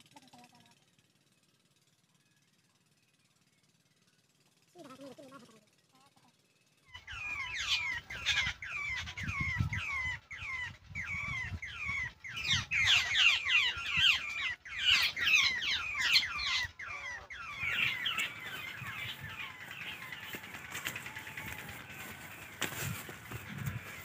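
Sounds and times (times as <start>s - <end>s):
birds calling harsh notes: 1.8s - 24.0s.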